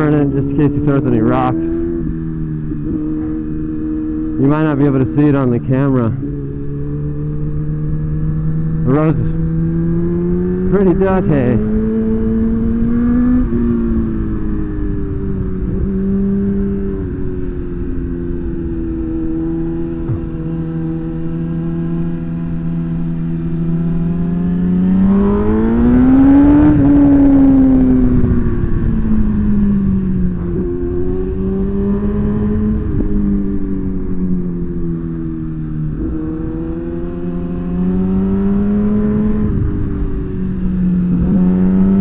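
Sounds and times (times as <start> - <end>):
motorcycle engine running: 0.0 - 42.0.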